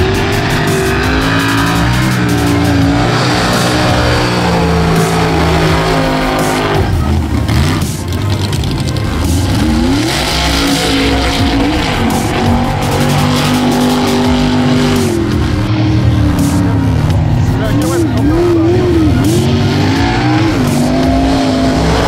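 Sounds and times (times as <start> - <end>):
truck engines revving high: 0.0 - 22.0.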